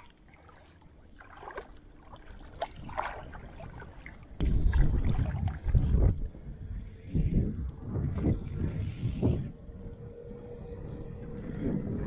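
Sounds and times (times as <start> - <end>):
net splashing in shallow water: 0.0 - 6.1
wind buffeting on microphone: 2.3 - 12.0.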